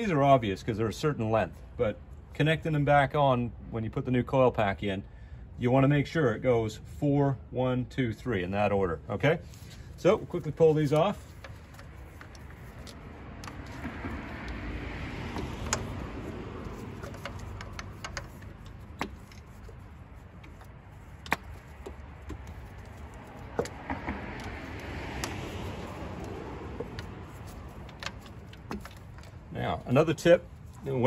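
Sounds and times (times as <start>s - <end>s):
rubber wires rustling and rubbing: 9.4s - 31.0s.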